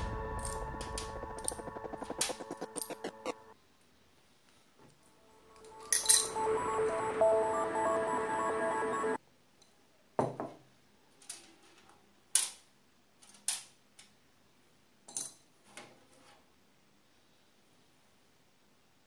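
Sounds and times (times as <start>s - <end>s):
background music: 0.0s - 3.6s, 5.1s - 9.2s.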